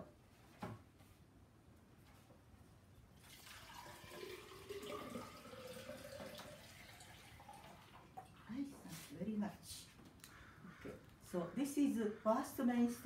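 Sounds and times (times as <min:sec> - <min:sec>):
water pouring into vase: 0:03.2 - 0:08.5.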